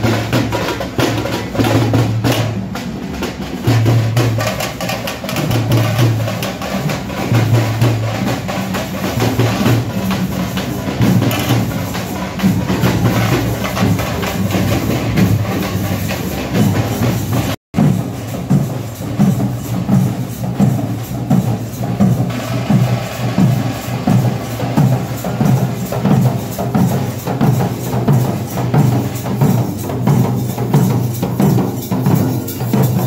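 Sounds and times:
frame drums beaten with sticks: 0:00.0 - 0:33.0
low drum beat: 0:00.0 - 0:33.0.

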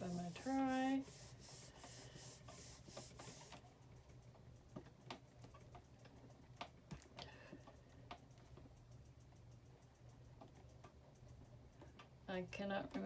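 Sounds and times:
rubbing sound: 0:00.0 - 0:03.6.

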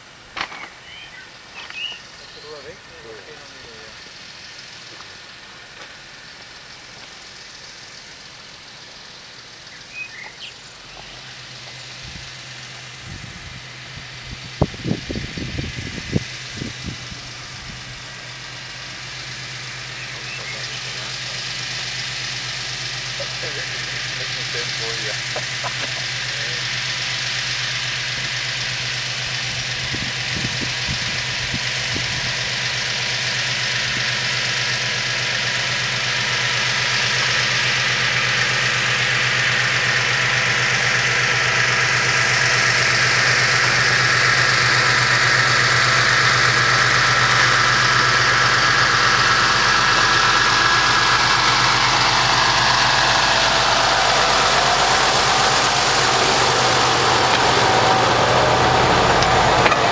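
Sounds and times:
diesel locomotive engine drone: 0:00.0 - 0:59.9
train wheels rumbling on rails: 0:00.0 - 0:59.9.

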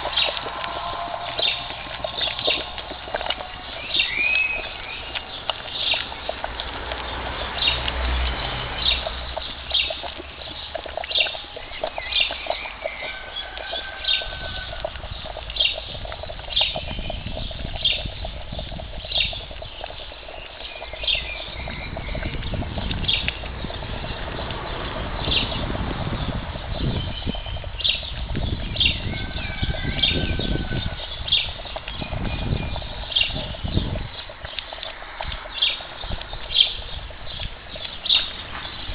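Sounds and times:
lime boiling with crackling: 0:00.0 - 0:38.9
bird chirping: 0:03.6 - 0:06.5, 0:07.1 - 0:24.4.

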